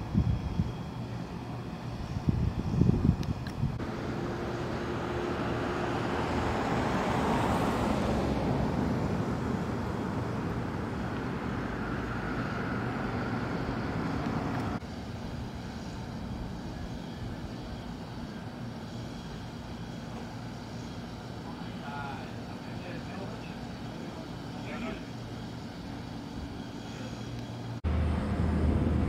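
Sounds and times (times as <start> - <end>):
vehicle passing: 3.8 - 14.8, 27.8 - 29.0.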